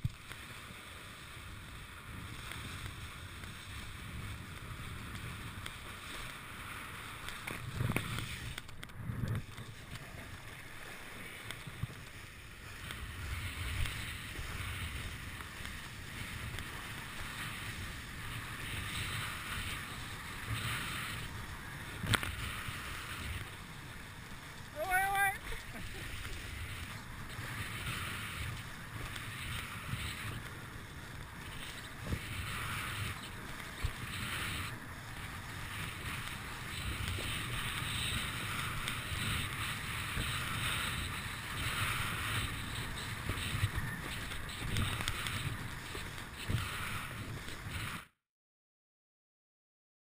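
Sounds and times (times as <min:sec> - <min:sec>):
wind buffeting microphone: 0:11.5 - 0:48.0.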